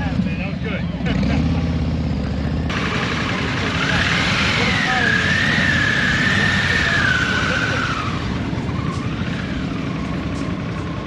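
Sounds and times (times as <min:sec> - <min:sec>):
motorcycle running slowly: 0:00.0 - 0:11.0
high wavering brake squeal: 0:03.8 - 0:11.0.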